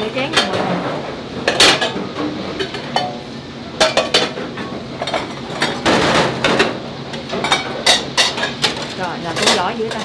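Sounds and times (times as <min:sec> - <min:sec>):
metal bowls clinking and clattering: 0:01.4 - 0:03.2, 0:03.8 - 0:10.0.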